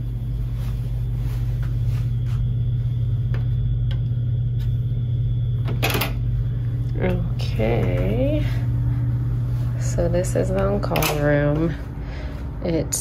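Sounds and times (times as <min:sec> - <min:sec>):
low mechanical hum: 0:00.0 - 0:13.0
soft footsteps on carpet: 0:00.4 - 0:03.6.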